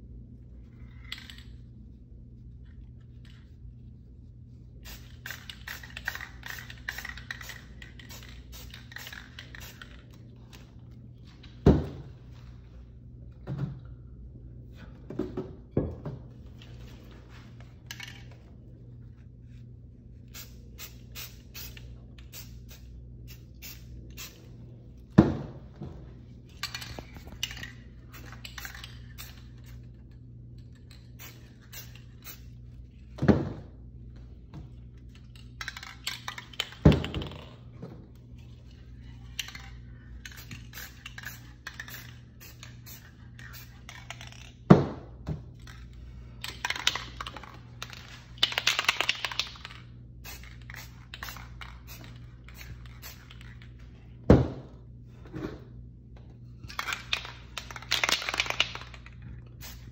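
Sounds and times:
spray cans rattling: 4.8 - 10.2, 26.5 - 29.9, 30.8 - 32.5, 35.3 - 37.6, 39.3 - 44.7, 46.4 - 53.9, 56.6 - 59.9
spray paint hissing: 31.1 - 32.6, 40.3 - 43.8, 50.2 - 53.5.

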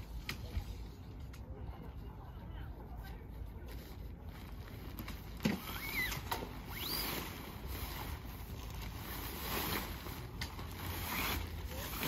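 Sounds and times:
tent poles and fabric handled: 3.0 - 12.0.

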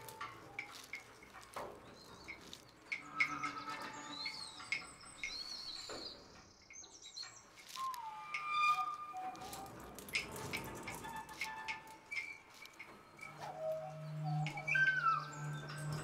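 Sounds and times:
bird chirps and whistled calls: 3.0 - 9.6, 13.1 - 16.0
low falling whistle: 7.8 - 9.7.

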